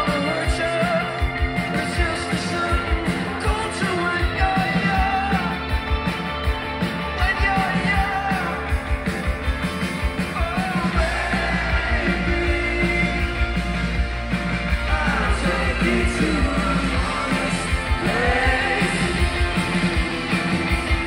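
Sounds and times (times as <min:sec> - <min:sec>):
person singing: 0:00.0 - 0:05.8, 0:10.2 - 0:14.0, 0:14.7 - 0:20.8
drum beat: 0:00.0 - 0:21.0
live rock band playing: 0:00.0 - 0:21.0.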